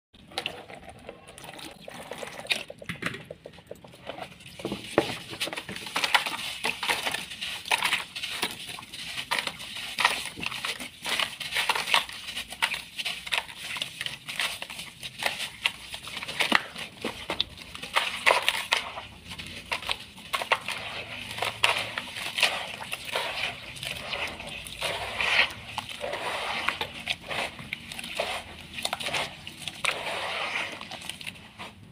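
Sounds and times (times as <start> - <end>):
water pouring: 0.2 - 4.2
wet crackling and squishing: 0.2 - 31.9.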